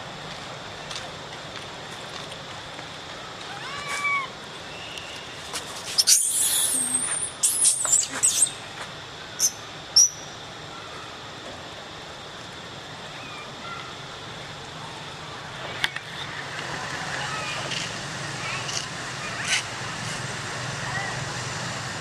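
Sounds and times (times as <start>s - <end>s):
monkeys screaming: 3.5s - 4.3s, 6.0s - 8.6s
monkey squeaks: 5.9s - 8.6s.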